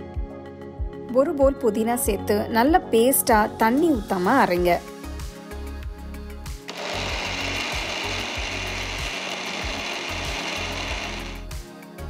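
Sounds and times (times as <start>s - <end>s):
mixer grinder running: 6.7s - 11.5s.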